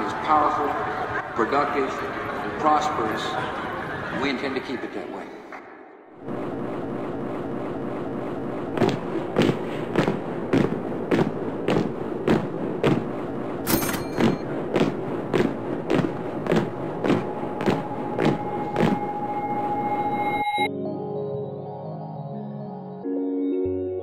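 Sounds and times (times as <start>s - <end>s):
constant rushing noise: 6.2s - 20.1s
boots marching in step: 8.8s - 19.2s.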